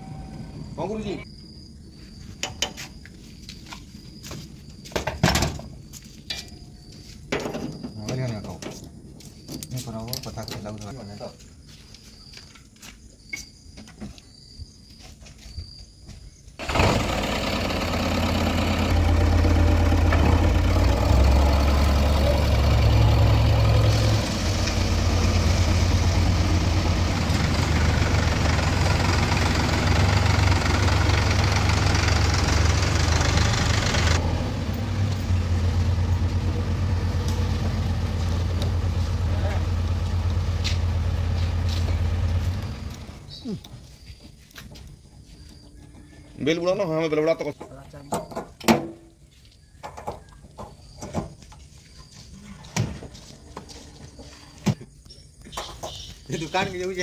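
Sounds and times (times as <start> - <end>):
heavy machinery diesel engine rumbling: 0.0 - 1.2, 16.6 - 43.6.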